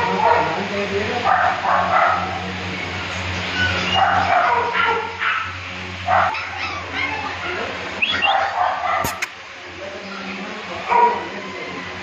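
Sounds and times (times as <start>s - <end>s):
dog barking and yipping: 1.3s - 2.4s, 3.6s - 7.6s, 8.2s - 9.4s.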